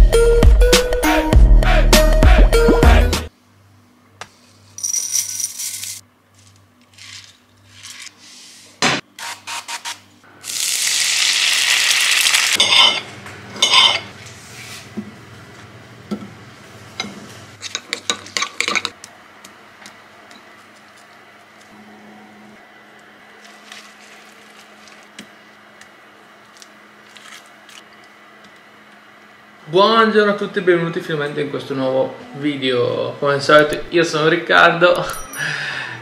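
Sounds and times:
dishes and cutlery clinking: 0:12.6 - 0:14.1.

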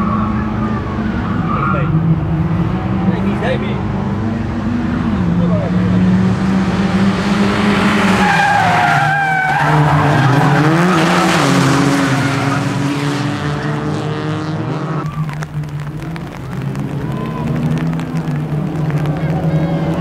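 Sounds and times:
race cars revving high: 0:00.0 - 0:20.0
tyres squealing: 0:08.1 - 0:12.8.

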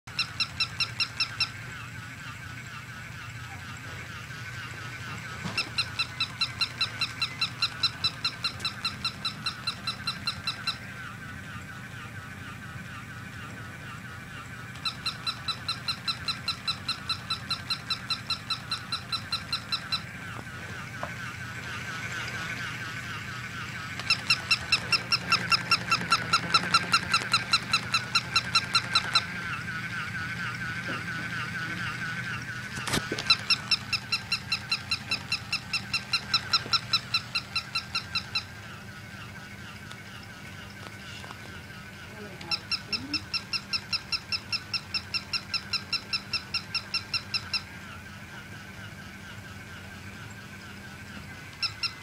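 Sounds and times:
steady low hum: 0:00.1 - 0:52.0
toy mechanism whine: 0:00.1 - 0:52.0
toy dog electronic yips: 0:24.0 - 0:29.3, 0:32.8 - 0:38.5.

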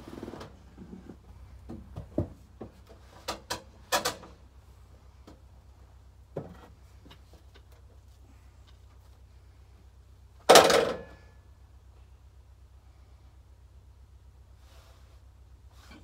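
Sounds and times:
wooden knocks and clunks of log: 0:00.8 - 0:03.7, 0:06.3 - 0:07.9.

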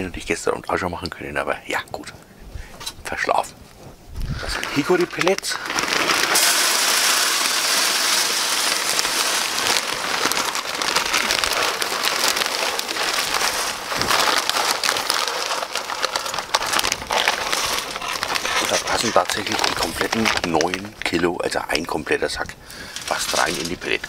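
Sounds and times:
plastic sack rustling: 0:03.3 - 0:24.0
wood pellets pouring and rattling: 0:04.3 - 0:22.2, 0:22.8 - 0:24.0.

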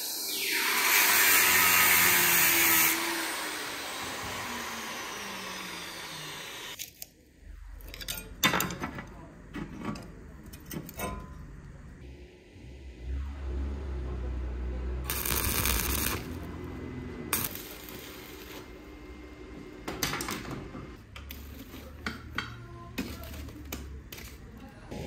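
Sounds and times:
arc welder crackling: 0:00.3 - 0:07.1, 0:15.0 - 0:24.9.

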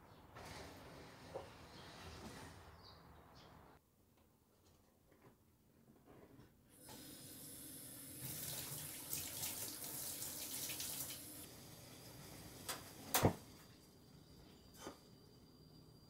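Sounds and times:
tap water running into sink: 0:06.8 - 0:11.6.

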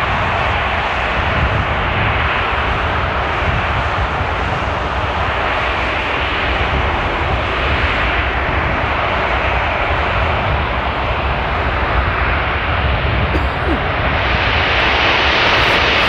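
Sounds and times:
jet engines roaring: 0:13.8 - 0:16.0.

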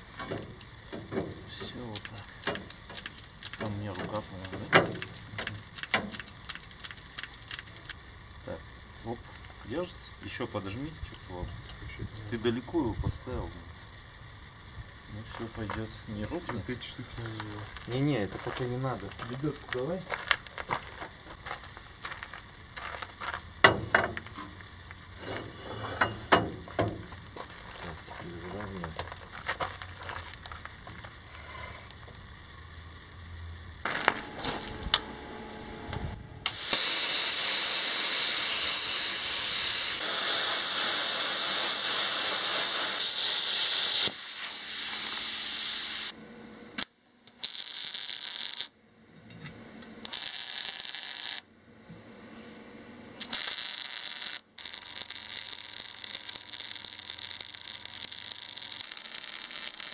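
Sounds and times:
welding arc sizzling: 0:00.0 - 0:48.8, 0:50.0 - 0:51.5, 0:53.2 - 0:59.9
metal knocks and clanks: 0:25.3 - 0:27.1.

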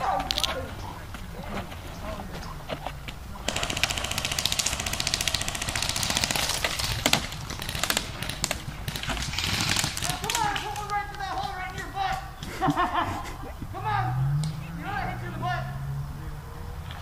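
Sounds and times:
airsoft gun full-auto burst: 0:03.5 - 0:10.9.

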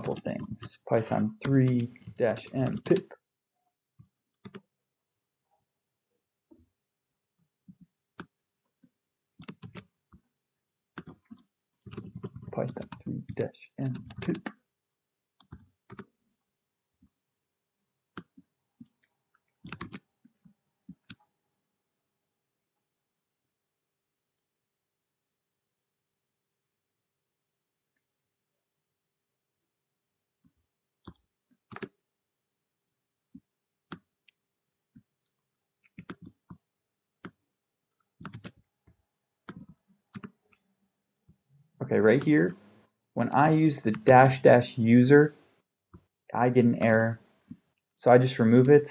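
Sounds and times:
keyboard and mouse clicks: 0:00.0 - 0:03.1, 0:04.4 - 0:04.7, 0:09.4 - 0:09.9, 0:11.0 - 0:14.6, 0:15.4 - 0:16.1, 0:18.2 - 0:19.0, 0:19.6 - 0:20.1, 0:20.9 - 0:21.2, 0:31.0 - 0:31.9, 0:35.8 - 0:36.6, 0:37.2 - 0:37.4, 0:38.2 - 0:40.6, 0:42.1 - 0:44.4
keyboard keystrokes: 0:01.4 - 0:03.1, 0:19.7 - 0:20.0, 0:31.7 - 0:31.9, 0:38.2 - 0:38.6, 0:39.5 - 0:40.3.

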